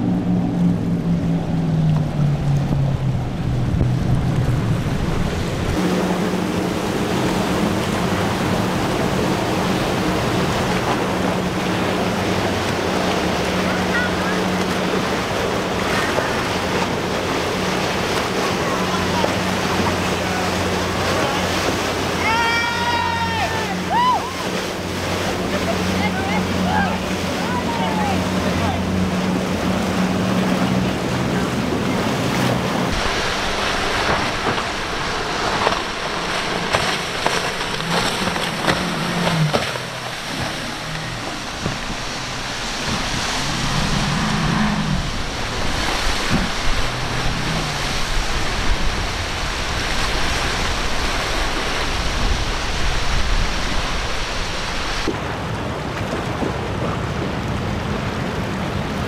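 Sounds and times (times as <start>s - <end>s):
wind on microphone: 0.0s - 22.3s, 26.3s - 59.0s
outboard engines running: 0.0s - 59.0s
rush of waves: 0.0s - 59.0s
wake spray: 23.7s - 55.1s.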